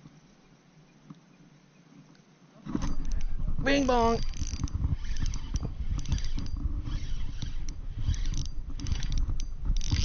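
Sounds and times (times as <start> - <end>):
fishing reel clicking and rattling: 2.9 - 10.0.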